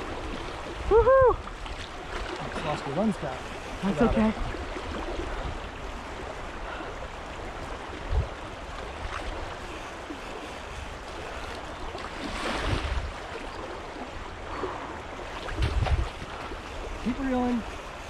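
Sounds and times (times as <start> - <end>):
river water rushing over riffles: 0.0 - 18.0.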